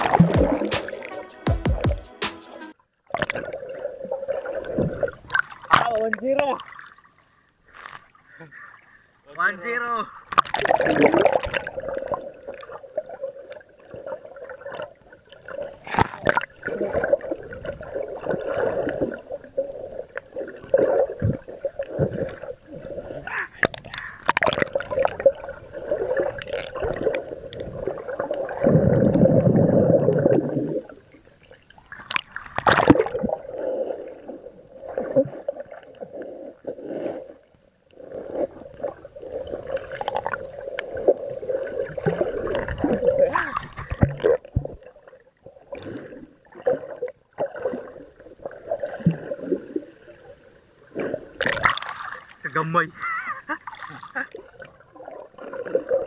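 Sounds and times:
muffled underwater sloshing: 3.1s - 56.0s.

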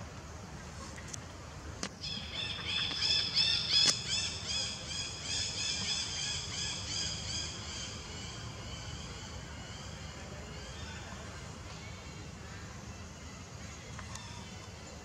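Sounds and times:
bird chirping rapidly: 2.0s - 10.0s.

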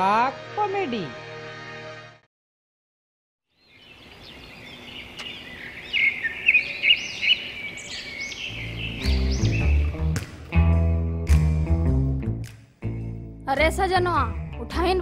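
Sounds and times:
birds chirping and twittering: 3.5s - 10.2s
background music with low bass: 8.5s - 15.0s.

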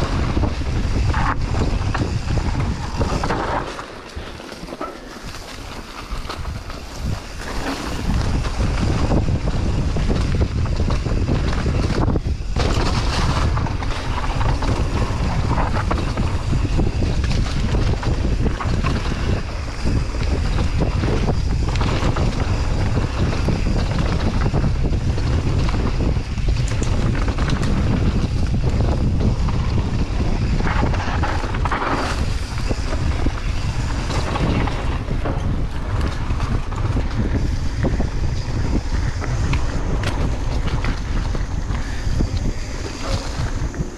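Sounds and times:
bike knocks and rattles: 0.0s - 43.9s
tyres rumbling on dirt trail: 0.0s - 43.9s
wind buffeting microphone: 0.0s - 43.9s.

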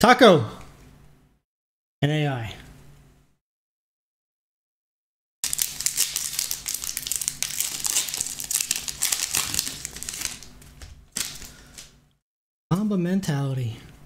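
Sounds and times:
foil wrapper crinkling: 5.4s - 12.0s.

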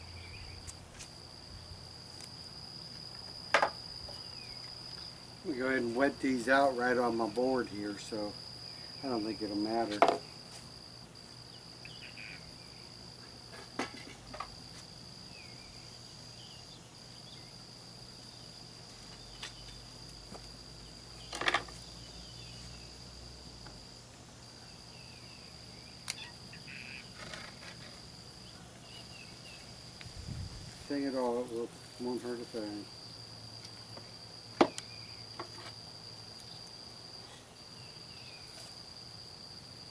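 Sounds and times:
cricket trilling: 0.0s - 39.9s.

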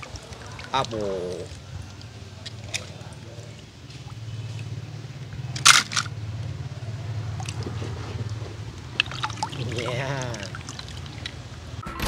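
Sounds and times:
water trickling and sloshing: 0.0s - 11.8s
toy car splashing into water: 5.6s - 6.1s, 8.9s - 11.5s.

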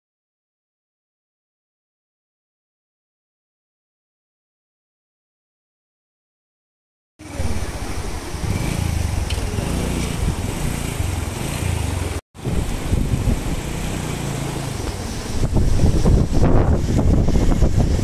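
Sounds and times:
wind buffeting microphone: 7.3s - 18.0s.

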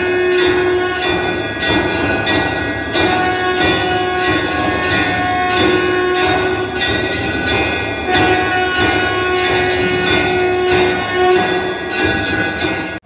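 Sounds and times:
temple bells ringing: 0.0s - 13.0s.

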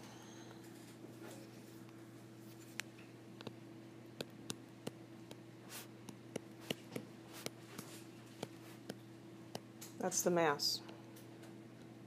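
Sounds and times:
faint steady hum: 0.0s - 12.0s
stylus tapping on tablet screen: 2.6s - 9.7s.

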